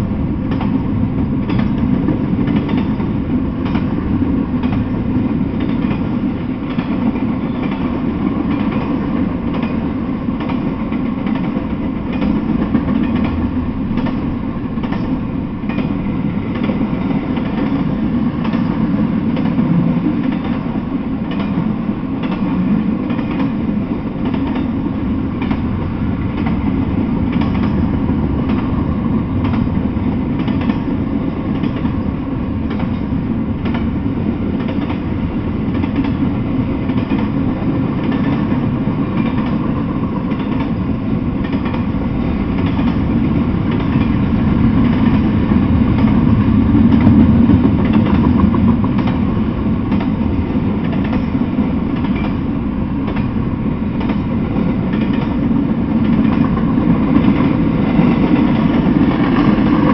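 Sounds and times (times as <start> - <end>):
freight train wheels rumbling: 0.0 - 59.9
faint rail clicks: 1.4 - 4.0, 5.6 - 9.8, 10.4 - 14.2, 14.8 - 21.6, 27.3 - 28.8, 29.4 - 29.8, 30.4 - 30.9, 32.6 - 34.0, 34.6 - 35.1, 35.7 - 43.1, 43.7 - 45.3, 45.9 - 49.3, 49.9 - 50.2, 50.8 - 52.4, 54.0 - 59.9.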